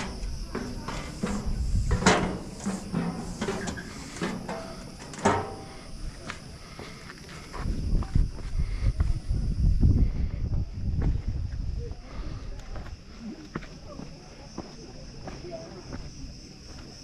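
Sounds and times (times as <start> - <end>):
low wind rumble on microphone: 1.2 - 2.2, 7.5 - 13.0
footsteps and scuffs: 5.7 - 9.3, 10.9 - 17.0.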